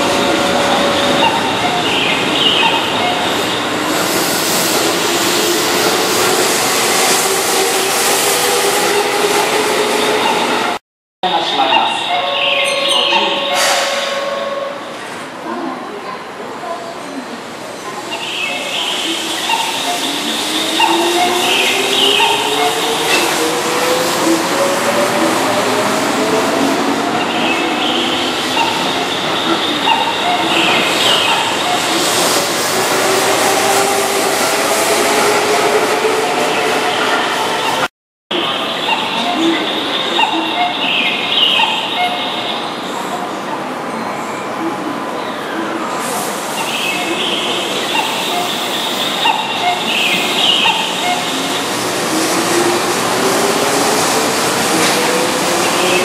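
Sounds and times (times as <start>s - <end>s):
train wheel and rail noise: 0.0s - 56.0s
train high thin squeal: 11.9s - 15.1s.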